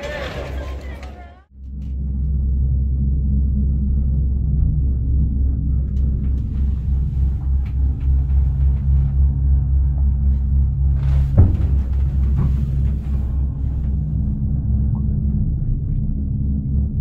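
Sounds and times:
low mechanical drone: 0.0 - 17.0.

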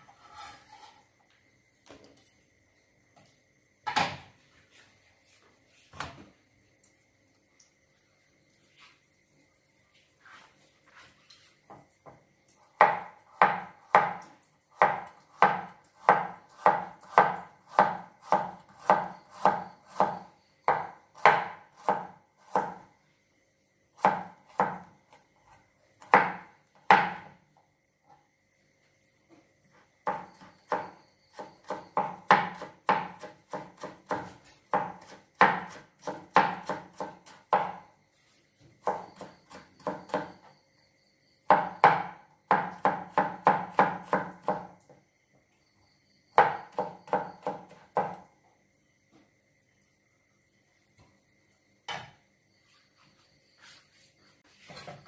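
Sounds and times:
cleaver chopping on plastic board: 14.8 - 22.8, 31.6 - 37.8.

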